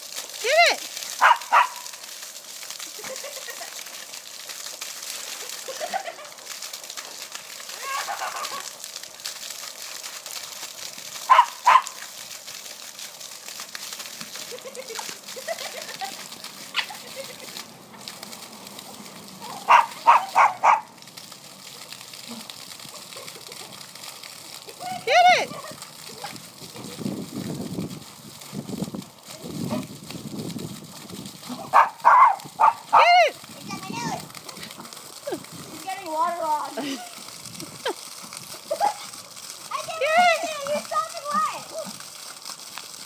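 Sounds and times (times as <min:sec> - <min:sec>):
water gushing with steady hiss: 0:00.0 - 0:43.0
puppy barking: 0:01.2 - 0:01.9, 0:11.3 - 0:12.0, 0:19.6 - 0:20.9, 0:31.7 - 0:33.1.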